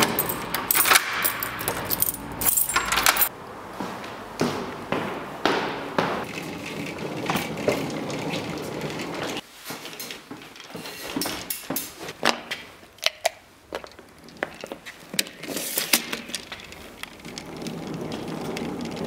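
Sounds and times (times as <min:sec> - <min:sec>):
suitcase rolling on concrete: 0:06.2 - 0:11.0, 0:13.7 - 0:19.0.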